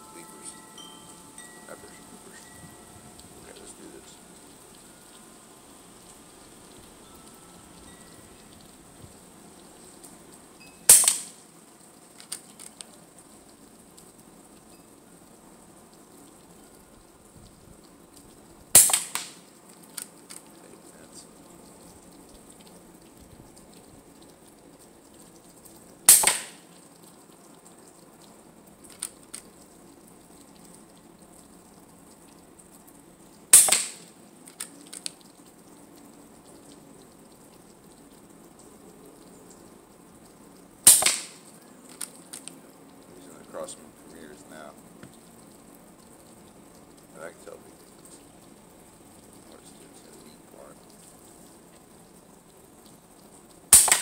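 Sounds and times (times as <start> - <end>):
air rifle shots: 10.9 - 11.4, 18.8 - 19.4, 26.1 - 26.6, 33.6 - 34.1, 40.9 - 41.4, 53.7 - 54.0
faint ticks: 19.2 - 26.0, 26.7 - 33.0, 34.0 - 40.7, 41.4 - 53.6.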